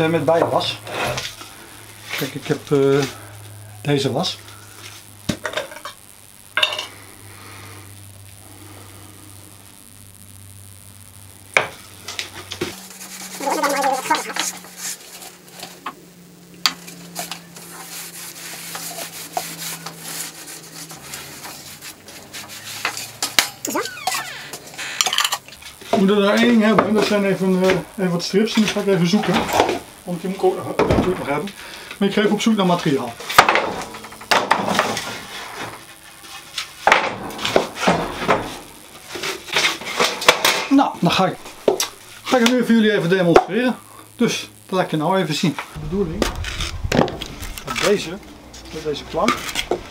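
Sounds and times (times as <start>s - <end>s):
steady low hum: 0.0s - 22.9s, 45.6s - 49.9s
wax rubbing on wood: 12.7s - 15.5s, 17.0s - 23.2s.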